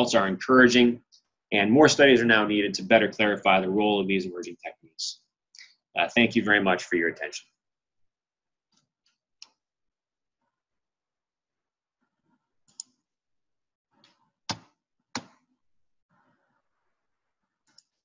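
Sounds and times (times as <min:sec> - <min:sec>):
computer mouse clicks: 0:12.7 - 0:13.0, 0:17.6 - 0:18.0.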